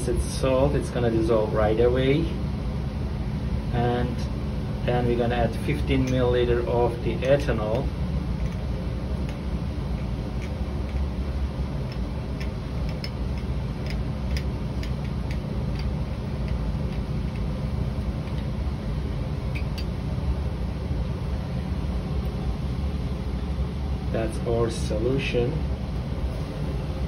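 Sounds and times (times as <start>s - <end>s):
ventilation hum: 0.0s - 27.0s.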